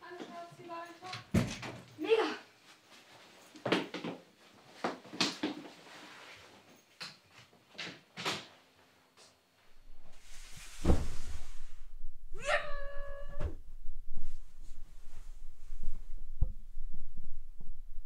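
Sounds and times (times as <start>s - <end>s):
heavy low thump: 13.3s - 18.0s.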